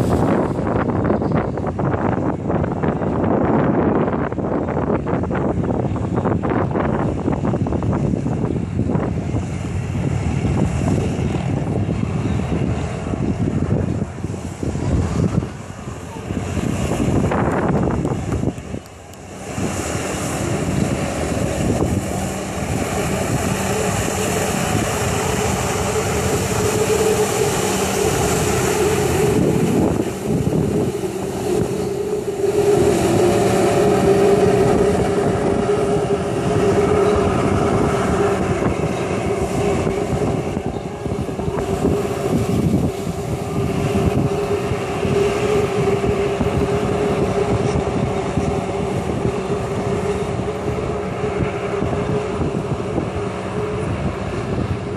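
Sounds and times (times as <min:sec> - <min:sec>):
watercraft engine at high revs: 0:00.0 - 0:54.9.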